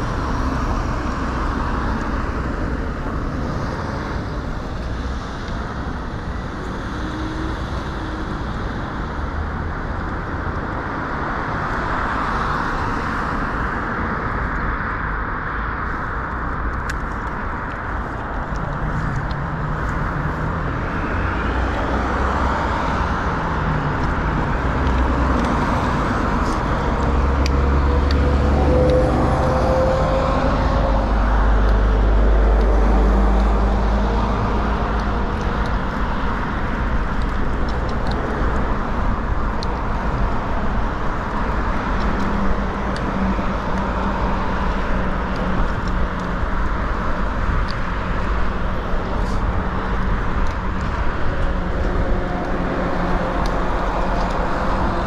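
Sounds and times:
cars passing: 0:00.0 - 0:55.0
heavy vehicle rumbling past: 0:19.2 - 0:35.3.

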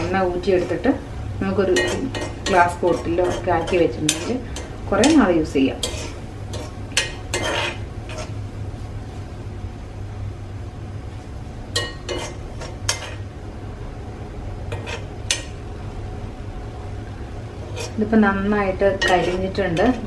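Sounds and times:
spoon scraping pan: 0:01.6 - 0:08.4, 0:11.8 - 0:13.3, 0:14.7 - 0:15.5, 0:17.6 - 0:18.0, 0:18.9 - 0:20.0.

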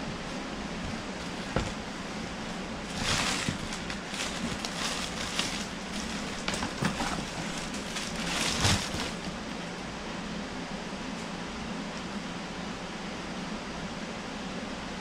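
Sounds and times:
plastic packaging crinkling: 0:01.1 - 0:09.5.

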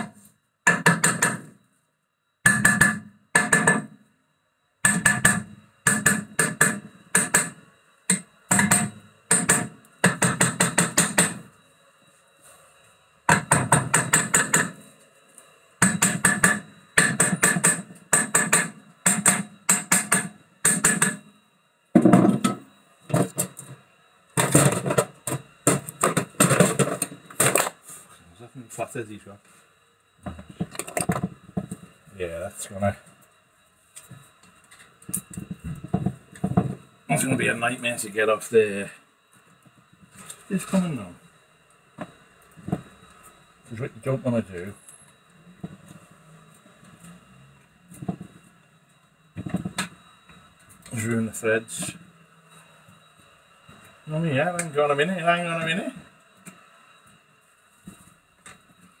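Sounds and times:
hammer striking metal: 0:00.0 - 0:01.5, 0:02.4 - 0:04.0, 0:04.8 - 0:11.5, 0:13.3 - 0:14.8, 0:15.8 - 0:21.3.

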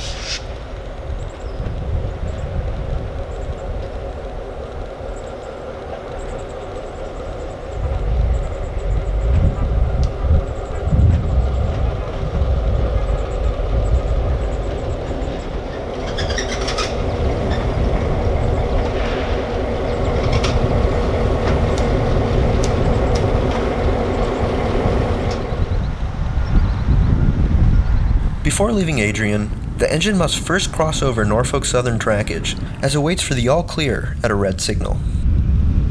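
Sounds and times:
diesel locomotive engine droning: 0:00.0 - 0:35.9
wheels clicking on track: 0:00.0 - 0:35.9
high squeal: 0:13.0 - 0:20.4.

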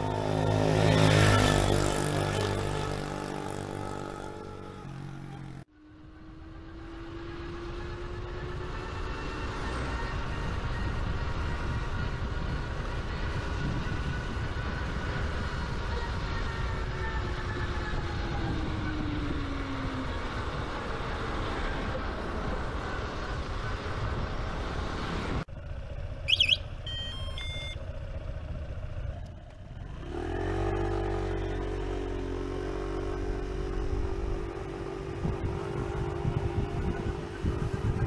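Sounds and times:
wind and road noise: 0:00.0 - 0:38.0
electronic chirping beeps: 0:26.3 - 0:27.8
faint motor tone: 0:26.3 - 0:28.1.

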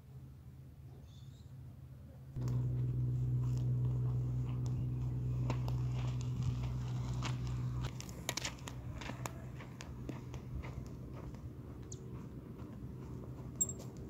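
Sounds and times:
steady low hum: 0:02.3 - 0:14.0
wheelbarrow crunching over dirt: 0:02.5 - 0:08.8
flip-flop footsteps: 0:05.4 - 0:14.0.

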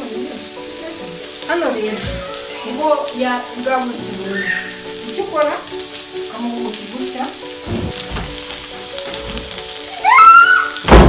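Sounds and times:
background music: 0:00.0 - 0:11.0
chicken sizzling in a pan: 0:00.0 - 0:11.0.

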